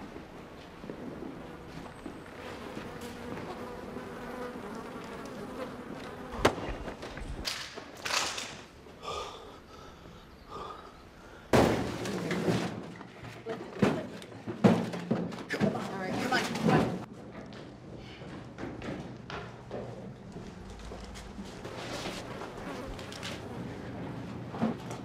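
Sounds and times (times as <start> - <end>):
flies buzzing: 1.5 - 7.0
thuds: 11.5 - 12.9.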